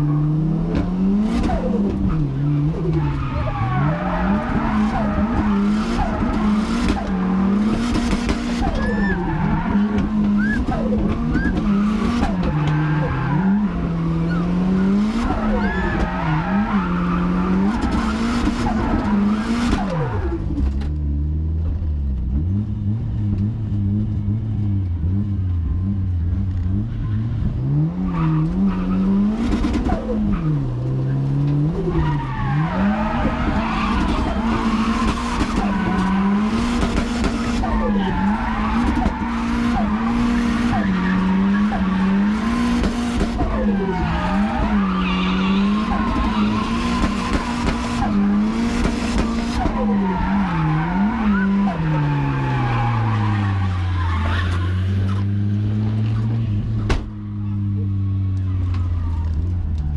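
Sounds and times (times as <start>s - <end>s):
car engine revving: 0.0s - 59.9s
tyres squealing: 1.4s - 20.1s, 31.8s - 55.2s.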